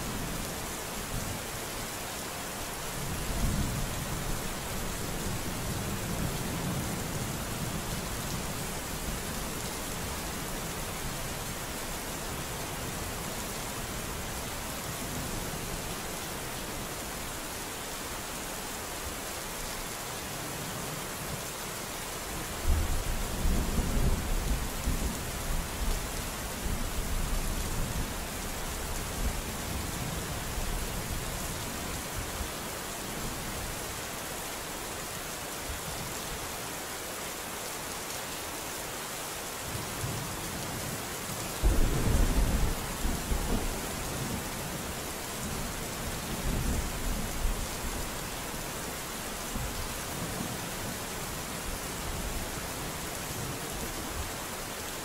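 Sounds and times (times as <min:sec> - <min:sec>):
steady rain: 0:00.0 - 0:55.0
thunder rumbling: 0:41.6 - 0:43.8.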